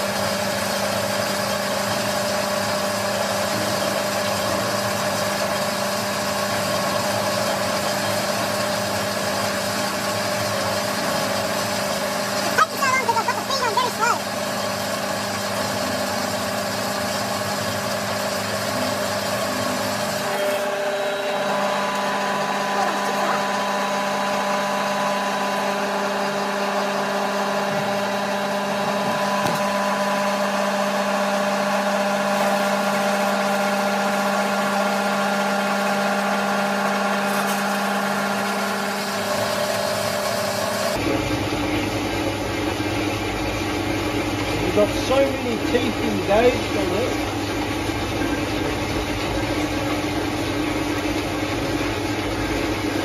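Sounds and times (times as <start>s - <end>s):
bandsaw cutting metal: 0.0s - 30.1s, 35.4s - 41.0s, 44.5s - 47.2s.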